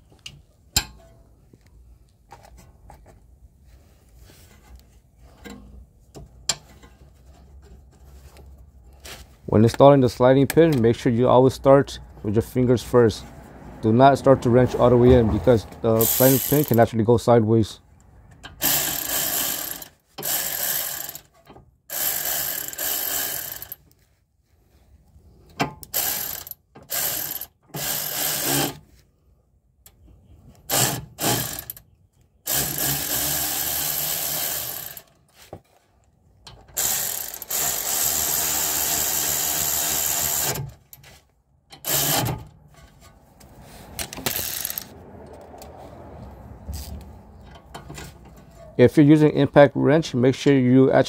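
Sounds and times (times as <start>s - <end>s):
impact wrench running: 16.0s - 16.8s, 18.6s - 23.8s, 25.8s - 28.8s, 30.7s - 31.8s, 32.5s - 35.2s, 36.7s - 40.8s, 41.8s - 42.4s, 44.2s - 44.9s.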